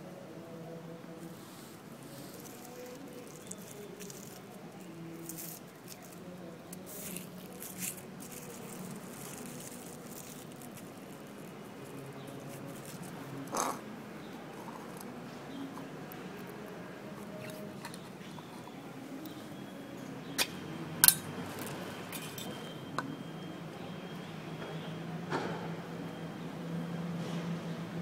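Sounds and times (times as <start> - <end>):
small clicks and rustles: 2.1 - 13.2.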